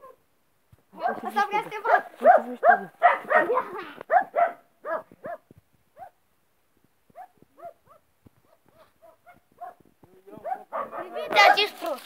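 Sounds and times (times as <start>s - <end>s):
dog yelping barks: 1.0s - 6.2s, 7.1s - 9.8s, 10.4s - 11.8s.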